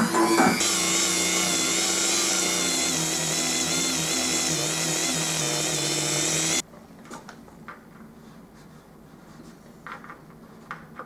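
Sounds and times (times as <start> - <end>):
rotary tool whining: 0.0 - 6.6.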